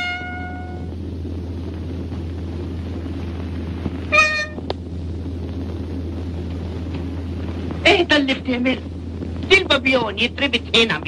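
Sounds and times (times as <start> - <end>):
short ringing tone: 0.0 - 0.9, 4.1 - 4.6
film soundtrack hum and hiss: 0.0 - 11.0.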